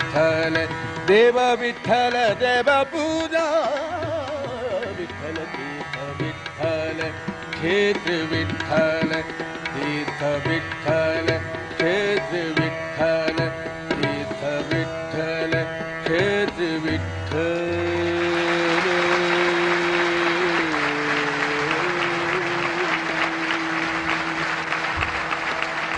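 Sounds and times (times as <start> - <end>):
devotional song: 0.0 - 25.9
tabla strokes: 0.0 - 25.9
audience applause: 18.2 - 25.9.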